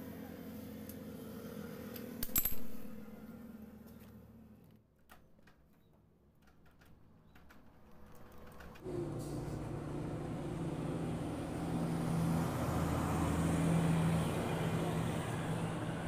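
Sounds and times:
vehicle engine running: 8.8s - 16.0s.

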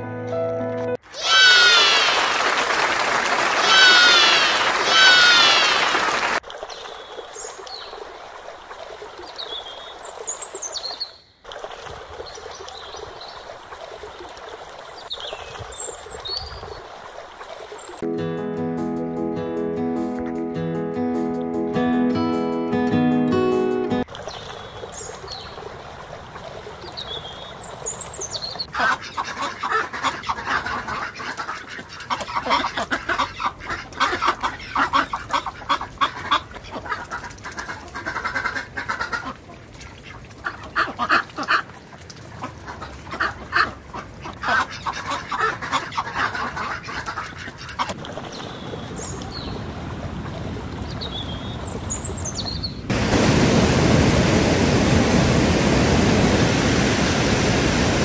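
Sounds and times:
ducks quacking: 3.6s - 6.4s, 28.7s - 41.7s, 42.4s - 48.0s
white water rushing in rapids: 52.9s - 58.0s.

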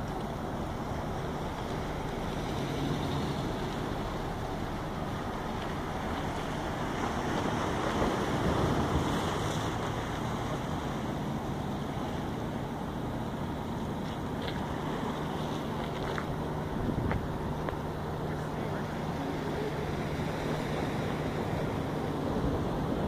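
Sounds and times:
wind buffeting microphone: 0.0s - 11.2s, 15.7s - 18.0s
waves washing against rocks: 0.0s - 23.0s.

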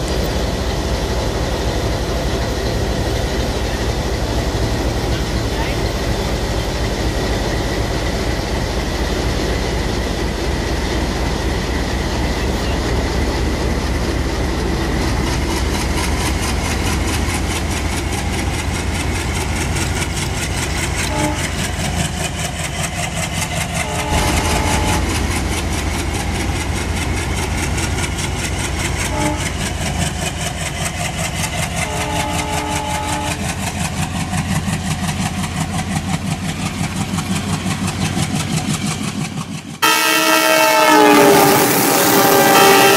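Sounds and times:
wheels clicking over track: 15.1s - 39.8s.

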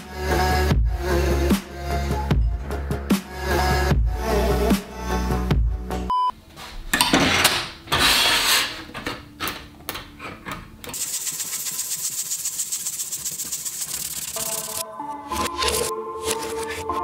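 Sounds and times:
test-tone beep: 6.1s - 6.3s
rapid sanding of plastic part: 11.0s - 14.8s.

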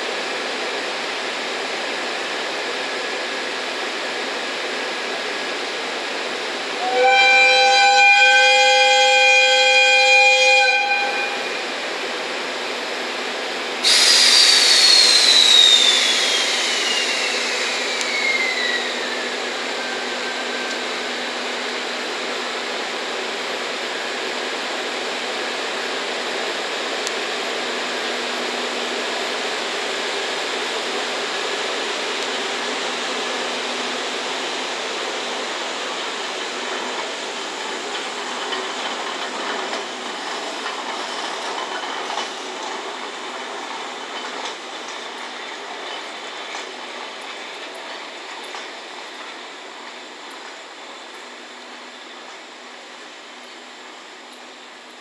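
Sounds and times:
locomotive air whistle: 6.8s - 11.7s, 13.8s - 21.4s
blower hiss: 11.6s - 55.0s
compressed air hiss: 13.8s - 19.4s.

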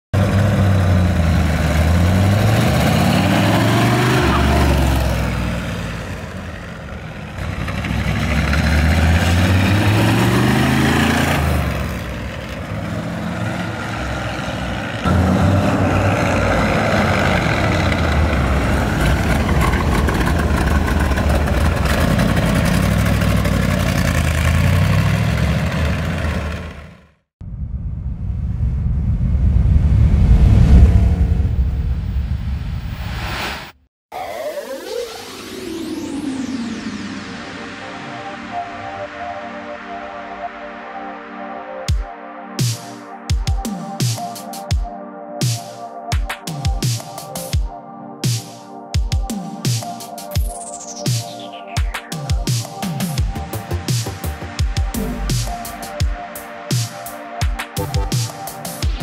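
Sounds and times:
car engine accelerating: 0.2s - 27.2s, 28.5s - 33.3s.

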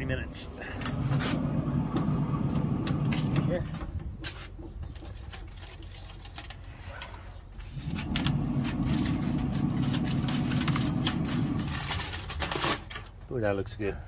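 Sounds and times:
aluminum foil crinkling: 4.9s - 13.1s.

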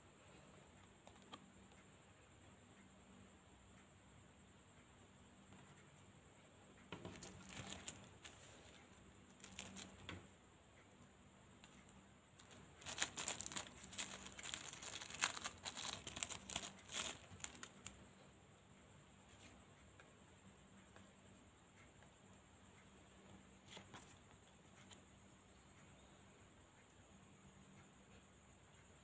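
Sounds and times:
paper wrapper crinkling and tearing: 7.4s - 8.0s, 12.4s - 17.8s.

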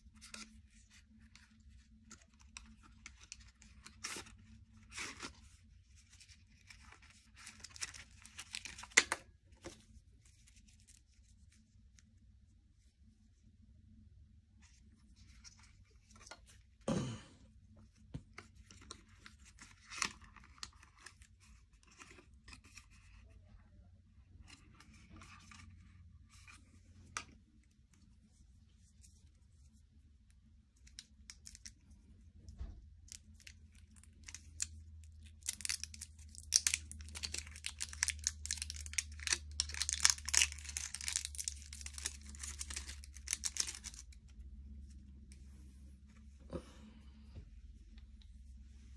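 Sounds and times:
wrapper tearing and crinkling: 33.1s - 44.2s.

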